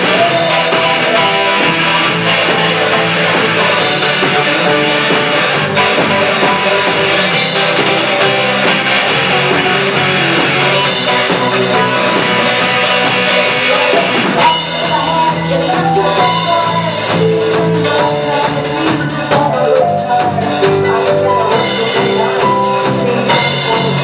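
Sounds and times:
live rock band playing: 0.0s - 24.0s
woman singing: 9.6s - 24.0s.

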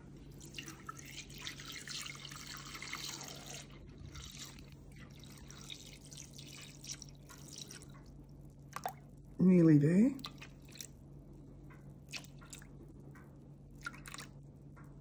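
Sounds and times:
milk pouring into a metal bowl: 0.2s - 8.2s.

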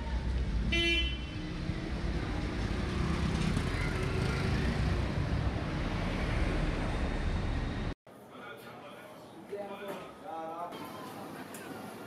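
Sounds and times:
road traffic rumble: 0.0s - 8.0s.

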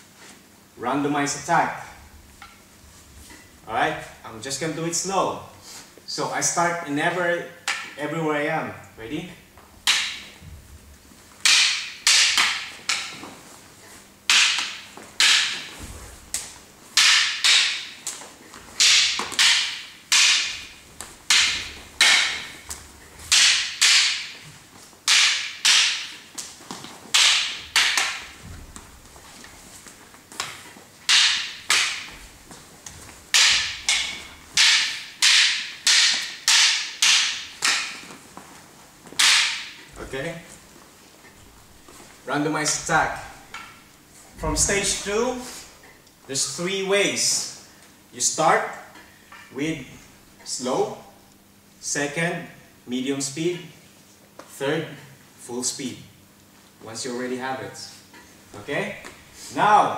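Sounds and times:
sticks clacking together: 7.7s - 8.0s, 9.8s - 10.4s, 11.4s - 13.4s, 14.3s - 29.5s, 30.3s - 38.2s, 39.1s - 40.1s, 42.7s - 43.8s.

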